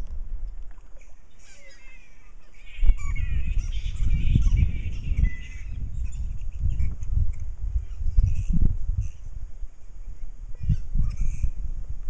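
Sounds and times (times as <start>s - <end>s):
bats squabbling calls: 1.2s - 9.2s.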